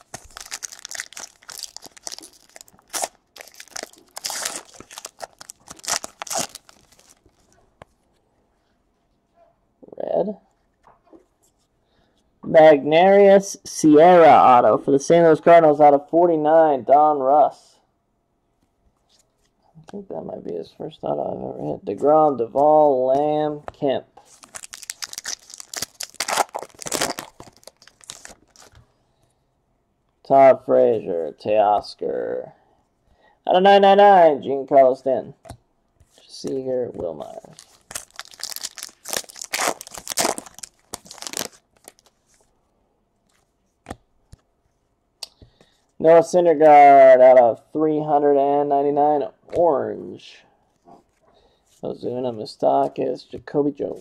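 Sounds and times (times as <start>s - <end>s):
foil wrapper crinkling: 0.0s - 7.5s, 24.2s - 28.8s, 37.4s - 42.4s.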